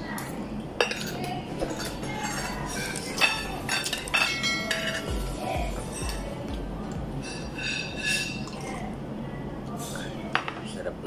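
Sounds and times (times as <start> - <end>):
cutlery clinking on ceramic plate: 0.8 - 5.2.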